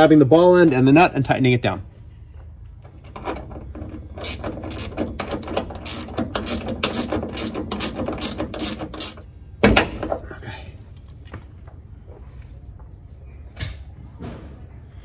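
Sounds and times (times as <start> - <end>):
ratchet wrench clicking: 3.9 - 9.3.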